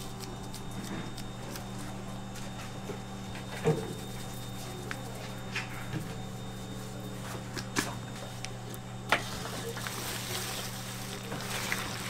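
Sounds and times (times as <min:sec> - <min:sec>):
steady machine hum: 0:00.0 - 0:12.0
vegetables squishing in steel bowl: 0:09.2 - 0:12.0.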